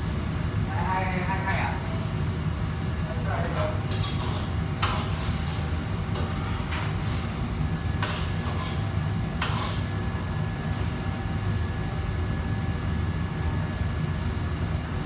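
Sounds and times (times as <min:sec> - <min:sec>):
ladle scraping sizzling wok: 0:03.7 - 0:10.0.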